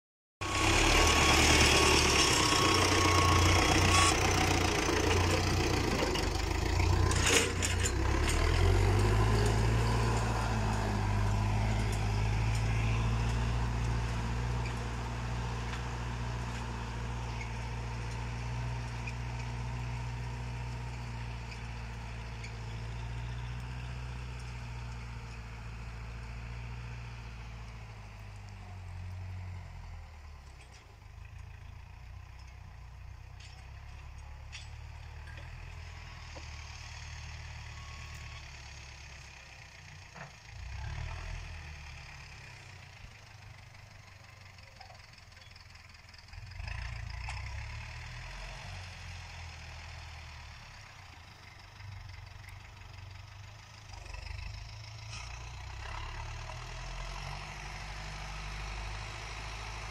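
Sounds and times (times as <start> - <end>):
disc harrow through soil: 0.4 - 59.9
tractor diesel engine running: 0.4 - 59.9.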